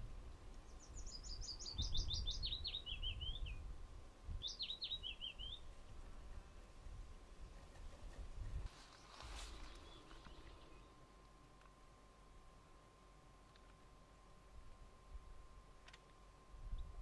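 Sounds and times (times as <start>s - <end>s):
small songbird singing: 0.6s - 3.7s, 4.3s - 5.8s, 7.7s - 11.1s.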